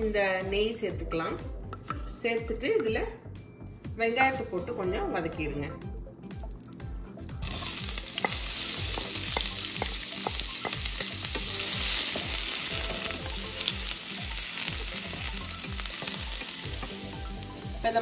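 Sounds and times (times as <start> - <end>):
onions sizzling in a frying pan: 7.4 - 18.0.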